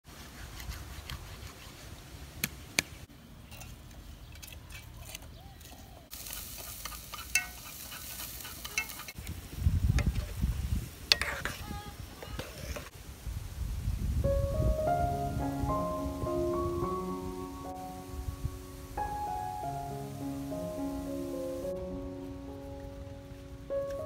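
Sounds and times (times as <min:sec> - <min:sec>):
hissing pot stirred with chopsticks: 0:05.0 - 0:12.9
piano music: 0:14.2 - 0:24.0.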